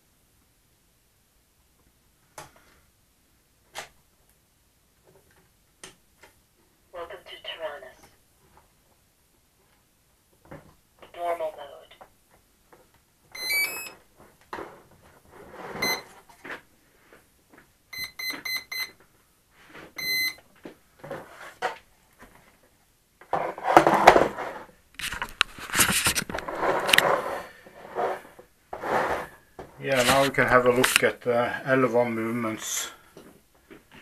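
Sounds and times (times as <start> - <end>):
electronic beeps: 13.3 - 14.0, 15.8 - 16.0, 18.0 - 18.9, 20.0 - 20.4.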